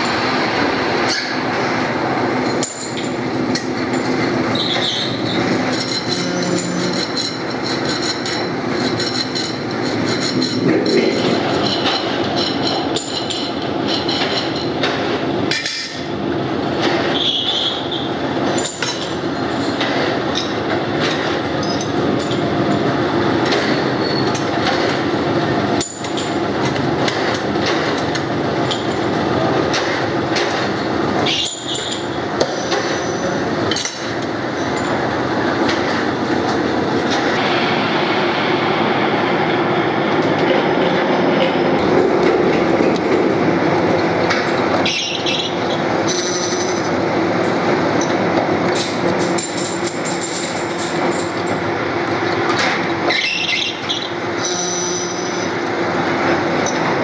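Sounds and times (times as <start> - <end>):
workshop machinery din: 0.0 - 57.0
metal clinks and knocks: 2.3 - 16.0, 18.4 - 25.0, 25.8 - 37.3, 44.3 - 51.7.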